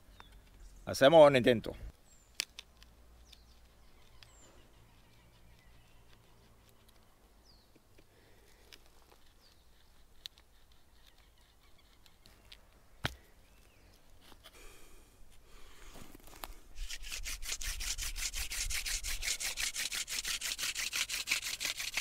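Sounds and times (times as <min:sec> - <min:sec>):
stone scraping dry stick: 0:02.4 - 0:07.1, 0:07.7 - 0:13.2, 0:14.0 - 0:14.6, 0:16.4 - 0:22.0
faint high bird chirps: 0:03.2 - 0:07.8, 0:09.2 - 0:12.7.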